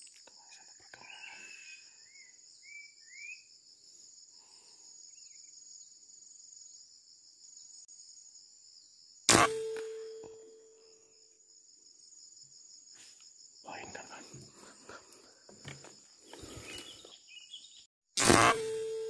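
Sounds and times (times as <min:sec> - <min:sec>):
high-pitched insect trill: 0:00.0 - 0:17.8.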